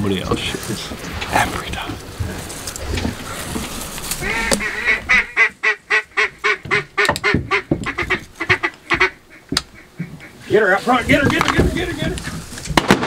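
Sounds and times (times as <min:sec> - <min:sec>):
duck call quacks: 0:04.2 - 0:10.6.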